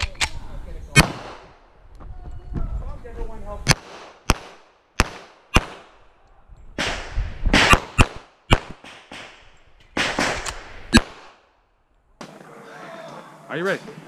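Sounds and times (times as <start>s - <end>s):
pistol shots with echo: 1.0s - 1.5s, 3.7s - 6.0s, 6.8s - 9.4s.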